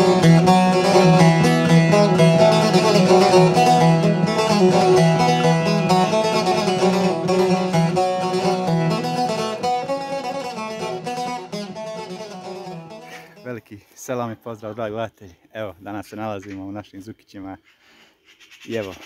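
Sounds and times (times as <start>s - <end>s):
instrumental music with plucked strings: 0.0s - 13.5s.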